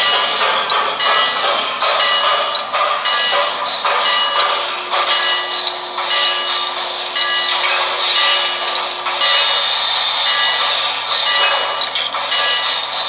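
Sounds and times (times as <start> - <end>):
loud steam hiss: 0.0 - 13.0
model steam locomotive running: 0.0 - 13.0.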